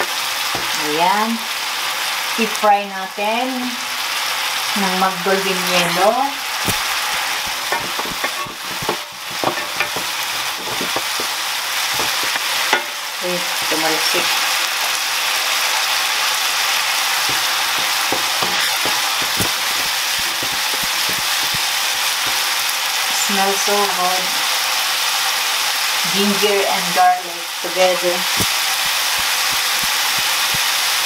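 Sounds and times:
spatula scraping and tapping pan: 0:00.6 - 0:00.8, 0:06.6 - 0:14.3, 0:17.2 - 0:22.6, 0:28.3 - 0:30.7
paste sizzling in oil: 0:04.0 - 0:24.0, 0:27.5 - 0:31.0.

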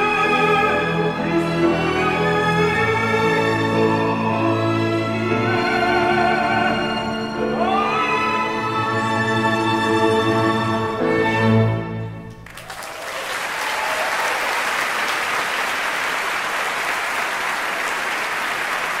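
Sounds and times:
audience applause: 0:12.3 - 0:19.0.

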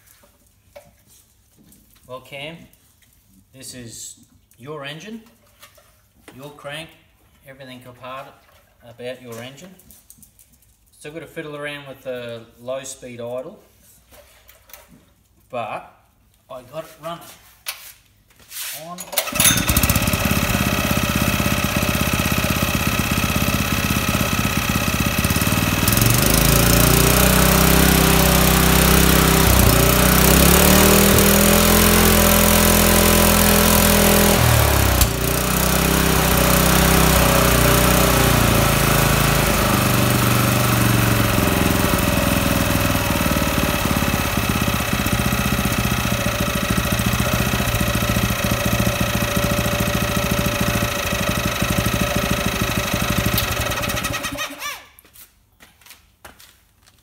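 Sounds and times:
small engine revving: 0:19.2 - 0:54.8.

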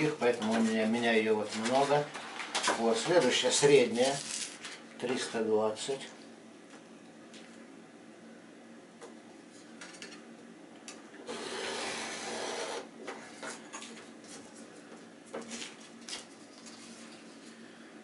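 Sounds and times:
paper rustling: 0:01.5 - 0:04.8
sandpaper scraping: 0:11.3 - 0:12.8.

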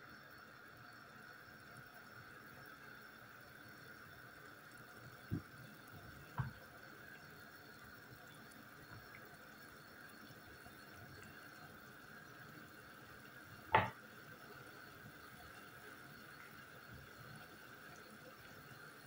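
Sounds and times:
water boiling in a pot: 0:00.0 - 0:19.0
soft thuds: 0:13.8 - 0:14.0.

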